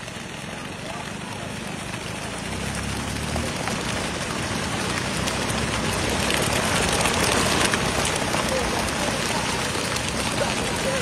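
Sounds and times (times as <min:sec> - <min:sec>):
fish thrashing in a net: 0:02.9 - 0:11.0.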